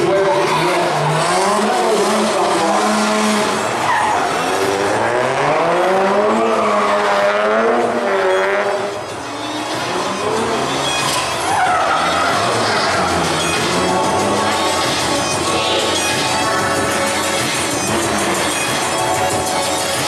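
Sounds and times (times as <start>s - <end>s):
car engine revving: 0.0s - 20.0s
tyres squealing: 7.9s - 20.0s.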